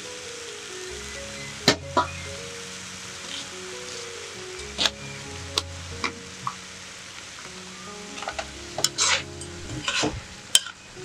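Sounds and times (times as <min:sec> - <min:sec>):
food sizzling in a pan: 0:00.0 - 0:11.0
soft background music: 0:00.0 - 0:11.0
utensil scraping a pan: 0:08.2 - 0:10.8.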